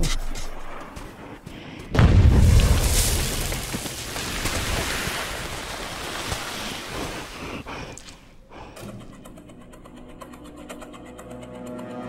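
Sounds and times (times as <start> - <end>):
falling sand and debris impacts: 1.9 - 7.4
rushing explosion noise: 2.0 - 5.4.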